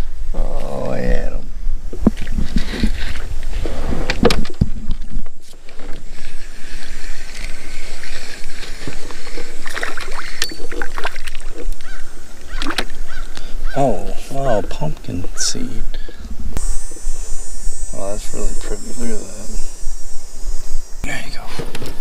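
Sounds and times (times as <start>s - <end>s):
water splashing: 6.2s - 13.1s.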